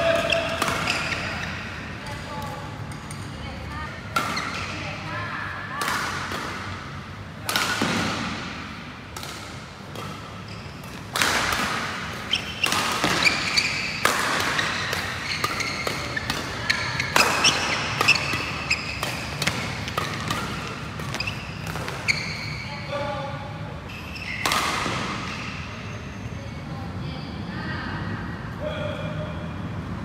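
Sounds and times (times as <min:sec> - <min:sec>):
shoes squeaking on court floor: 0:00.0 - 0:03.2, 0:10.0 - 0:11.2, 0:12.1 - 0:22.9, 0:23.8 - 0:26.6
rackets hitting shuttlecock: 0:00.0 - 0:03.4, 0:04.1 - 0:04.9, 0:05.8 - 0:22.5, 0:24.3 - 0:25.5.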